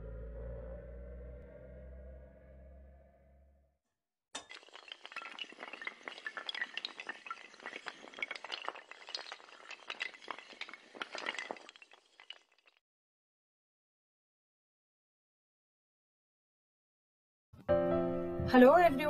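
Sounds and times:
toppling dominoes clatter: 0:04.4 - 0:12.8.

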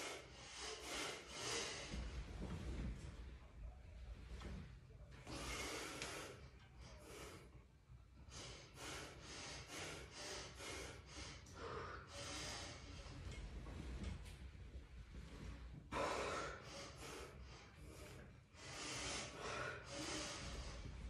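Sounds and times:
person breathing hard: 0:00.0 - 0:02.4, 0:05.2 - 0:07.6, 0:08.2 - 0:13.4, 0:15.8 - 0:21.0.

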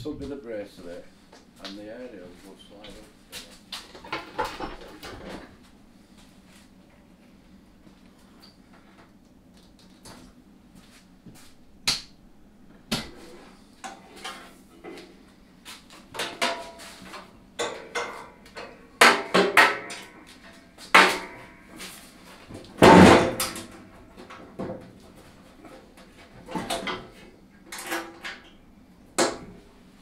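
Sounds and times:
metal bandsaw clanks and rattles: 0:17.6 - 0:20.2.

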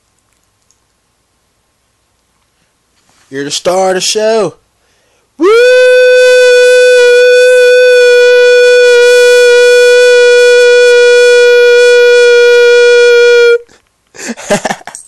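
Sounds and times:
man singing long high note: 0:05.4 - 0:13.7.

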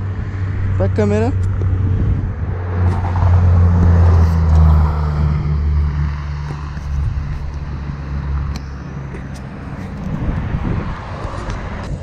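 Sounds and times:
vehicle engine droning: 0:00.0 - 0:12.0.

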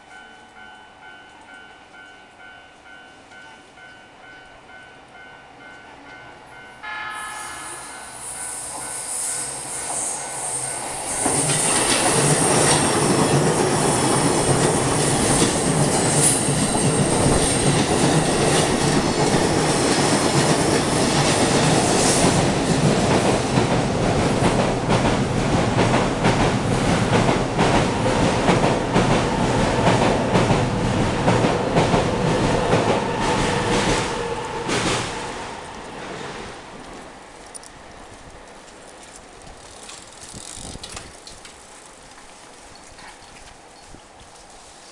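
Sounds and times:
electric train passing: 0:00.0 - 0:42.8
level crossing bells ringing: 0:00.1 - 0:08.4
wheels clicking over rail joints: 0:11.0 - 0:32.0, 0:36.8 - 0:44.9.

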